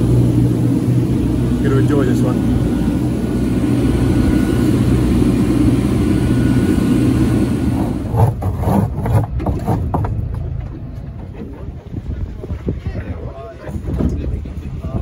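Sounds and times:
boat engine rumbling: 0.0s - 15.0s
wind: 0.0s - 15.0s
knocks and rustles: 8.2s - 11.6s.

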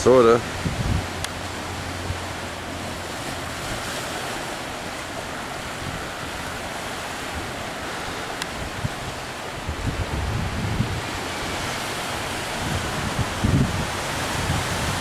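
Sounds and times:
ocean surf washing on rocks: 0.0s - 15.0s
wind noise on microphone: 0.0s - 15.0s.

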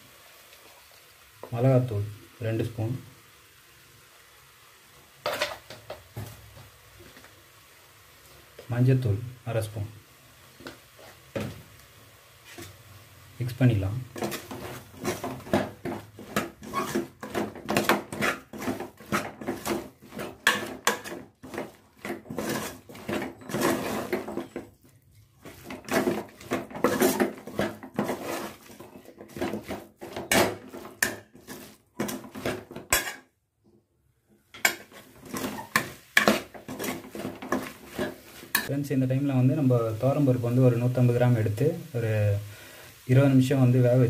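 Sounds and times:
metal spoon scraping a pot: 14.2s - 33.3s, 34.6s - 38.7s.

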